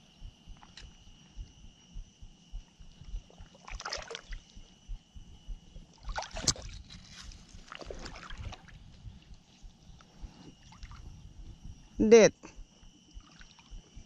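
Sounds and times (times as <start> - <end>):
water sloshing and splashing: 3.3 - 4.6, 5.9 - 11.2, 13.2 - 14.0.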